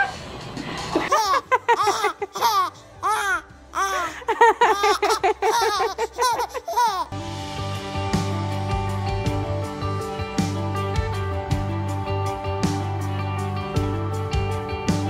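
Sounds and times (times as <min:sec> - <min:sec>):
music: 0:00.0 - 0:15.0
woman laughing: 0:01.0 - 0:02.8, 0:03.8 - 0:07.1
baby girl laughing: 0:01.0 - 0:07.2.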